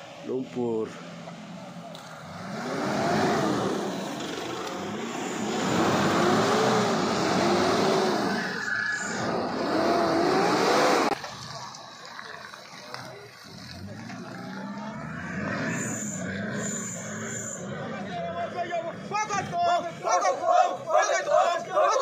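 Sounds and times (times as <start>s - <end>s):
pickup engine revving: 1.0s - 11.8s, 13.4s - 19.5s.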